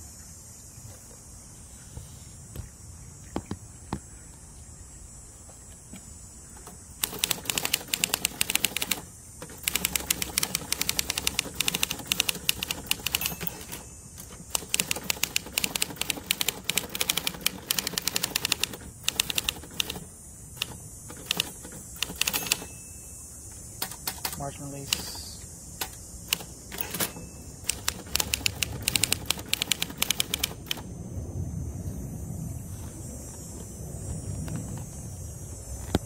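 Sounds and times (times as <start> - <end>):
typewriter typing: 7.0 - 22.8, 23.8 - 30.9.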